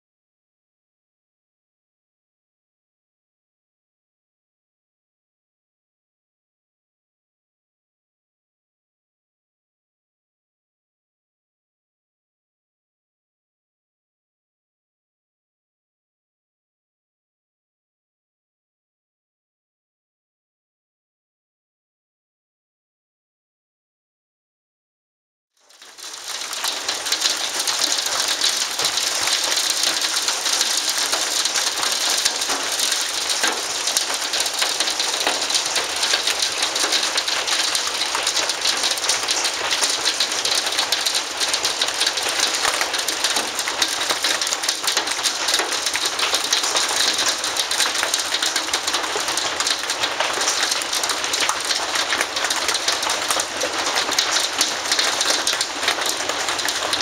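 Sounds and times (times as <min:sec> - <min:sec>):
hail rattling on ground: 0:25.7 - 0:57.0.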